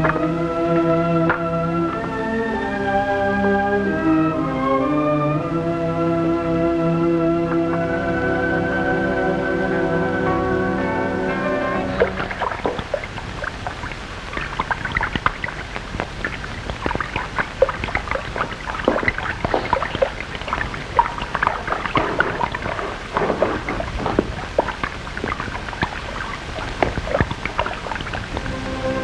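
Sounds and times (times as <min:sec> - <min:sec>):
low steady hum: 0:00.0 - 0:29.0
firework fountain crackling: 0:11.9 - 0:28.6.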